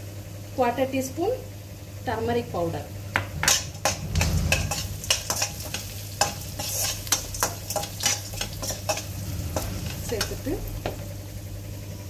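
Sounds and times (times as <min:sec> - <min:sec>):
food sizzling in oil: 0:02.1 - 0:11.6
metal spoon scraping a pan: 0:03.4 - 0:11.0.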